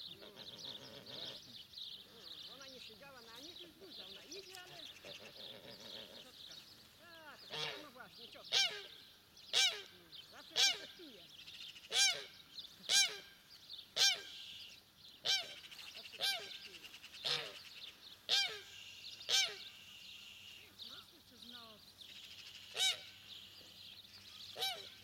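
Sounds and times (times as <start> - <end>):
geese honking: 7.3 - 11.2, 11.8 - 13.4, 14.0 - 14.6, 15.2 - 17.7, 18.3 - 21.0, 22.5 - 23.5, 24.5 - 25.0.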